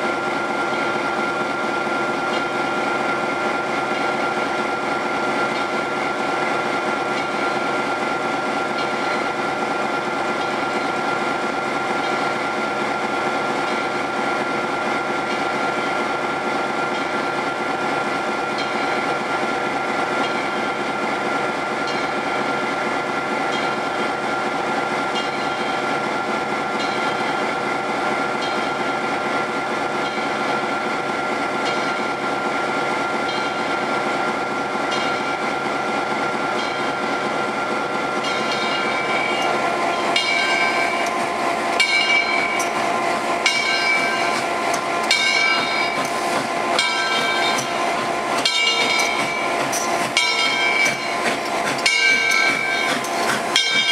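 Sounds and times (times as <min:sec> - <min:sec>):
locomotive bell ringing: 0:00.0 - 0:53.9.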